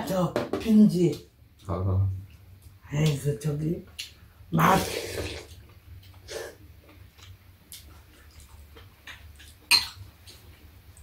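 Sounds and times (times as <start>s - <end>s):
low steady hum: 0.0s - 11.0s
people slurping soup: 4.7s - 5.6s.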